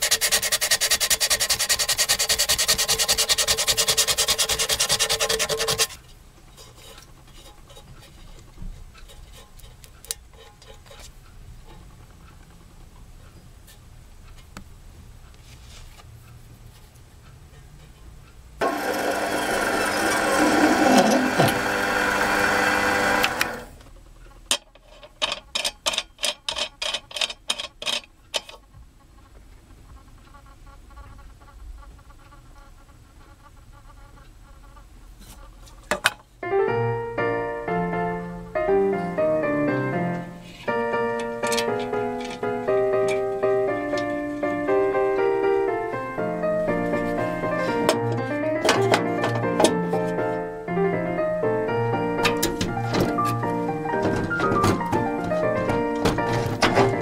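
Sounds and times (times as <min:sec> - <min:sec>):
sandpaper rubbing on metal: 0:00.0 - 0:06.0
metal lathe drilling brass: 0:18.6 - 0:23.7.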